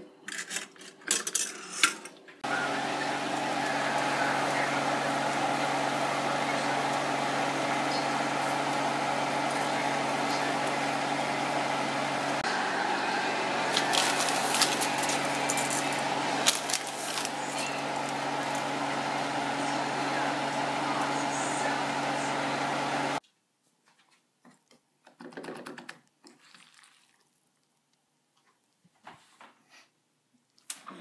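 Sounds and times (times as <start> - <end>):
water boiling in a pot: 2.4 - 23.2.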